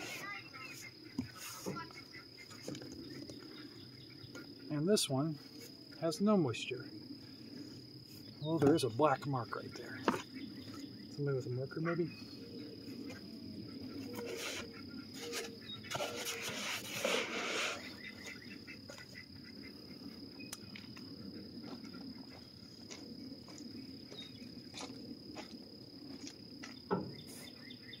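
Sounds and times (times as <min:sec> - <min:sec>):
insects trilling: 0:00.0 - 0:28.0
styrofoam rubbing and squeaking: 0:14.1 - 0:18.0.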